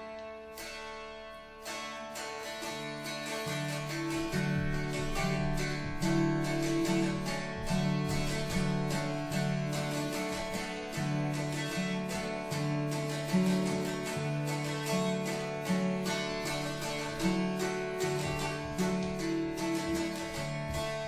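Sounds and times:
folk string group playing: 0.0 - 21.0.

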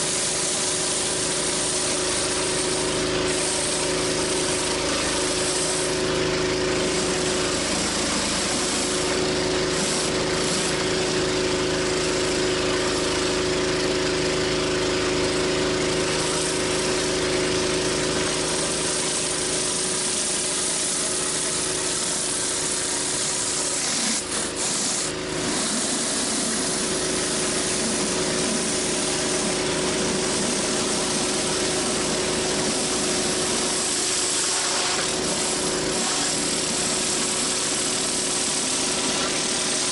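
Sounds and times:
pressure washer engine running: 0.0 - 39.9
water jet hissing on concrete: 0.0 - 39.9.

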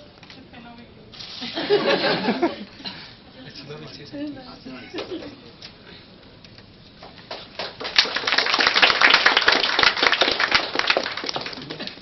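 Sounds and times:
people applauding: 7.0 - 12.0.

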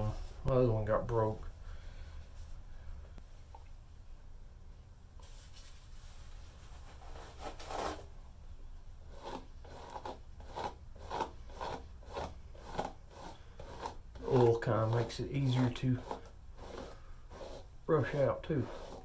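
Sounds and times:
brush strokes through beard: 9.1 - 19.0.

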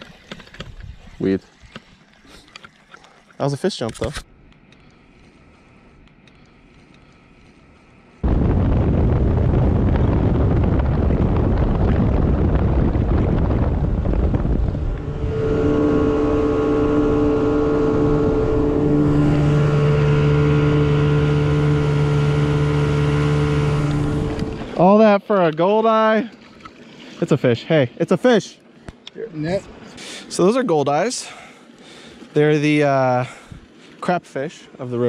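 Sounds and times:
boat engine hum: 0.0 - 35.0
wind buffeting microphone: 8.2 - 24.8
deep engine tone: 8.2 - 25.0.

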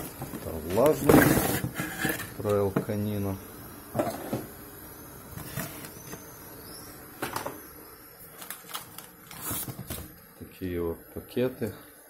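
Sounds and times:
plastic packaging rustling: 8.2 - 10.2.

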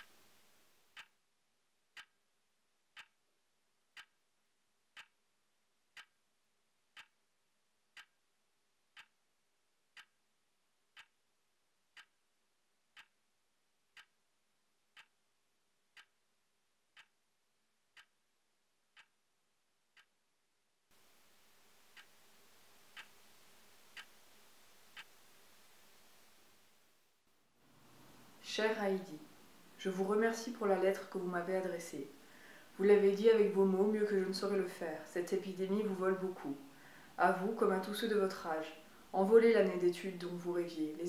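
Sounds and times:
clock ticking: 0.0 - 0.2, 0.9 - 1.2, 1.9 - 2.2, 2.9 - 3.2, 3.9 - 4.2, 4.9 - 5.2, 5.9 - 6.2, 6.9 - 7.2, 7.9 - 8.2, 8.9 - 9.2, 9.9 - 10.2, 10.9 - 11.2, 11.9 - 12.2, 12.9 - 13.2, 13.9 - 14.2, 14.9 - 15.2, 15.9 - 16.2, 16.9 - 17.2, 17.9 - 18.2, 18.9 - 19.2, 19.9 - 20.1, 21.9 - 22.1, 22.9 - 23.2, 23.9 - 24.2, 24.9 - 25.2.

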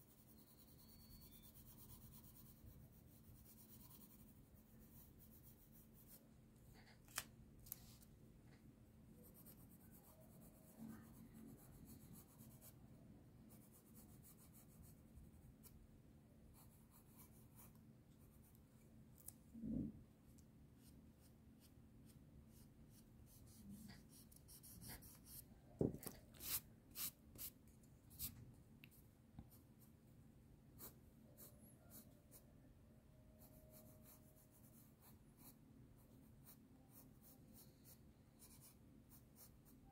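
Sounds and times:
pencil scratching on paper: 0.0 - 7.0, 9.2 - 12.8, 13.5 - 15.8, 16.5 - 18.6, 20.8 - 28.4, 30.8 - 32.4, 33.4 - 39.9.

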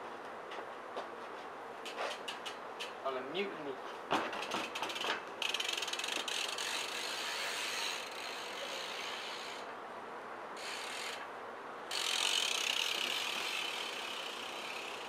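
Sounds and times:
bike hub ratcheting clicks: 4.4 - 9.7, 10.6 - 11.2, 11.9 - 15.0.

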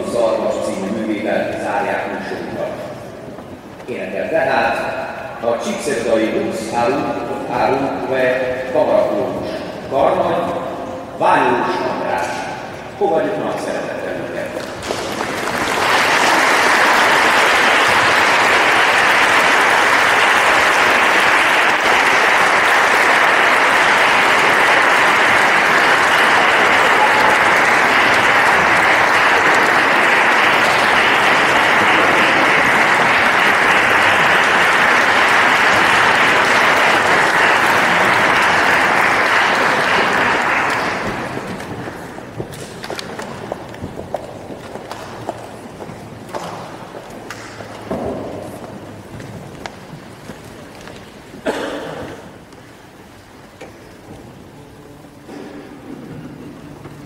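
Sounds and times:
audience applauding: 14.4 - 52.6.

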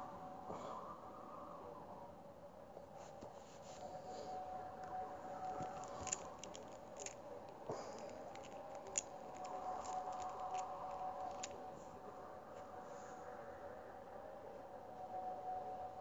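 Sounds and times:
faint two-tone hum: 0.0 - 16.0
soft clicks and crackles: 4.8 - 12.0.

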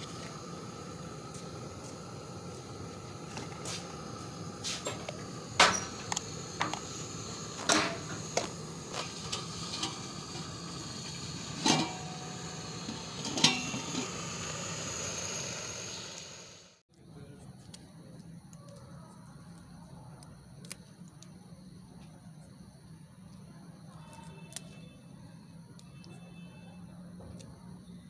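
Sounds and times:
metal pot and spoon clinking: 11.5 - 14.2.

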